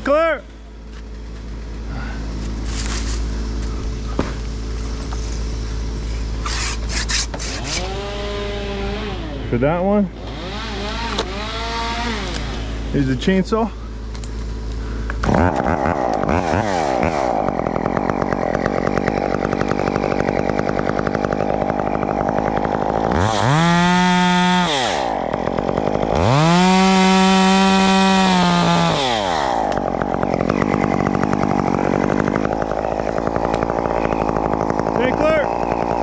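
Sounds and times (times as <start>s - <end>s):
chainsaw engine revving: 6.4s - 13.6s, 14.2s - 36.0s.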